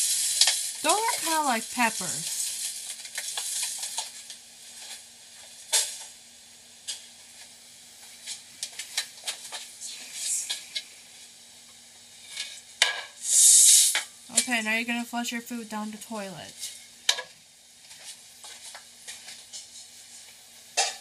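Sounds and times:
faint steady hum: 0:00.0 - 0:21.0
seeds poured into metal bowl: 0:13.2 - 0:14.0.

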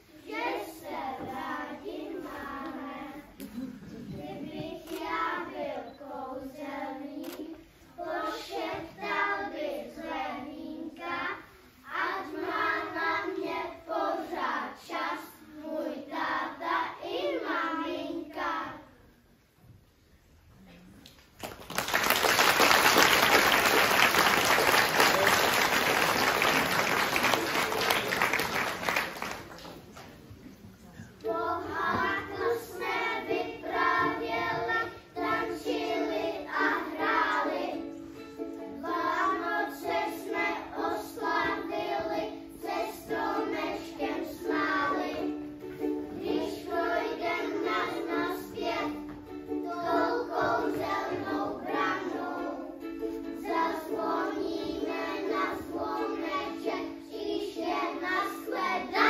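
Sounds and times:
children singing: 0:00.0 - 0:19.0, 0:31.0 - 0:59.0
audience applause: 0:21.4 - 0:30.1.

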